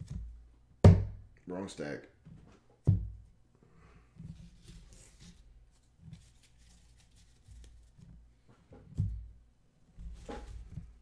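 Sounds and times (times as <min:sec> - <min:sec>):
cards sliding and rustling: 0:04.3 - 0:08.1.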